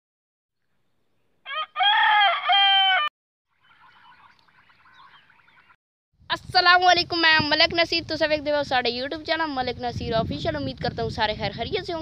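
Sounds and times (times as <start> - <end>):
rooster crowing: 1.4 - 3.1.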